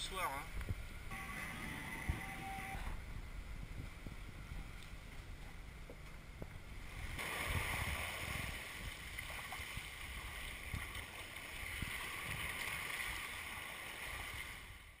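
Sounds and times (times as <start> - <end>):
wind rumble on microphone: 1.7 - 15.0
sea water rushing along hull: 6.7 - 15.0.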